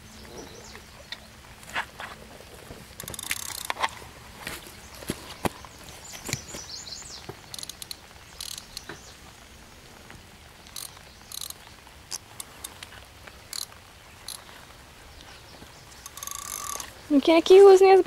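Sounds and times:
fishing reel clicks and scrapes: 3.0 - 3.9, 7.5 - 8.8, 10.7 - 11.6, 16.0 - 16.9.

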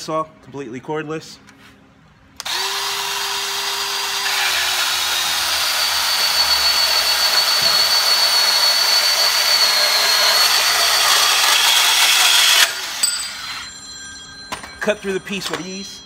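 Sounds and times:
band saw cutting steel: 2.4 - 13.8.

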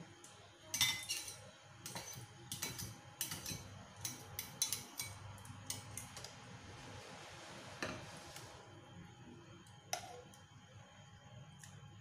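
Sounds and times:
metal tongs clinking on ceramic bowls: 0.7 - 6.1.

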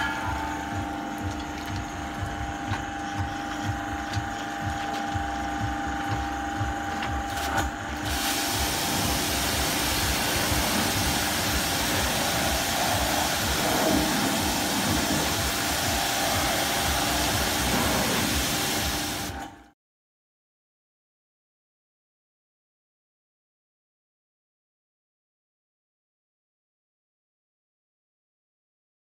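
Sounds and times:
pressure washer humming and pulsing: 0.0 - 19.7
high-pressure water hissing on pavement: 7.4 - 19.4.

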